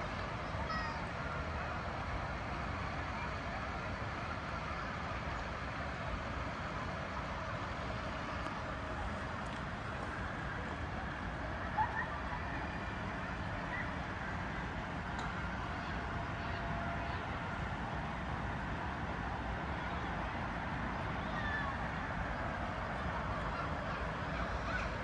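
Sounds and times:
distant city traffic hum: 0.0 - 25.0.

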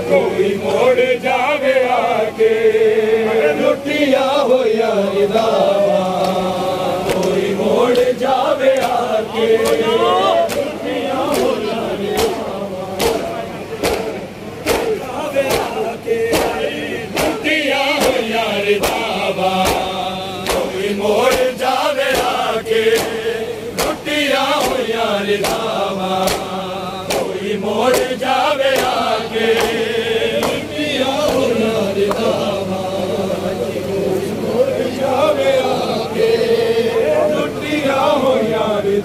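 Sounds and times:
crowd of men chanting: 0.0 - 39.0
hands slapping on chests: 10.5 - 10.7, 12.2 - 12.4, 13.0 - 16.6, 17.2 - 23.2, 23.8 - 29.8, 30.4 - 32.3.

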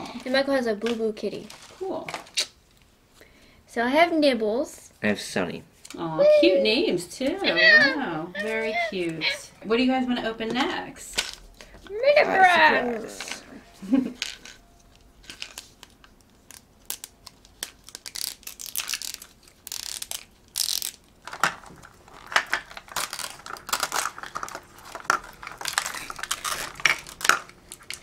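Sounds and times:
plastic wrapping crinkling and tearing: 14.3 - 28.0.

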